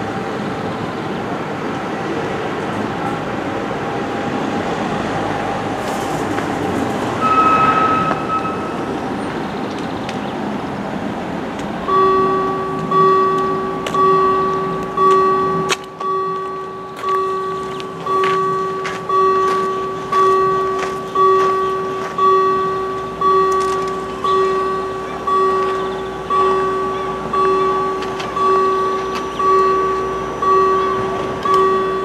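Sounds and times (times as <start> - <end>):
level crossing warning bell: 5.1 - 9.6, 11.3 - 32.0.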